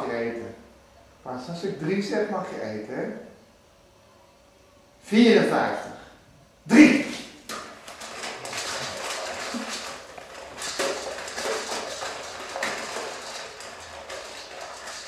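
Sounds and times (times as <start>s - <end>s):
dogs eating from metal bowls: 7.7s - 15.0s.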